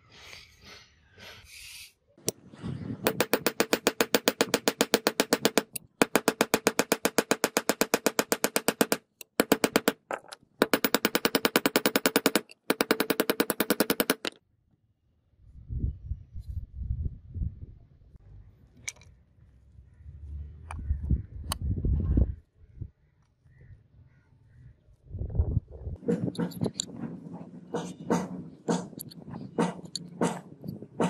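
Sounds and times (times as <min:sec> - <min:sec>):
small hammer tapping on metal: 0:03.1 - 0:14.4.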